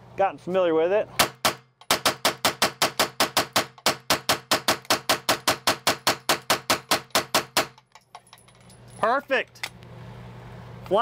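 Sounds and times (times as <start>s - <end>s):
rapid semi-automatic gunfire: 1.2s - 7.8s.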